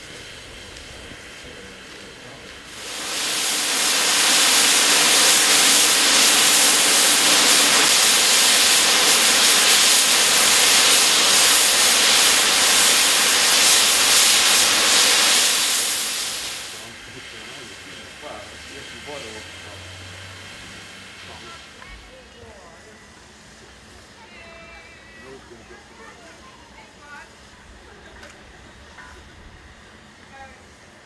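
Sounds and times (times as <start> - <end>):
steam hissing from safety valves: 0.0 - 24.2.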